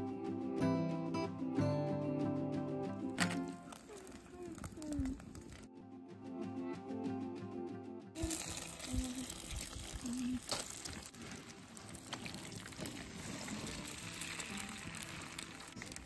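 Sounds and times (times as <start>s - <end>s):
eggs cracking knocks: 3.2s - 5.7s
eggs sizzling in oil: 3.2s - 5.7s, 8.2s - 16.0s.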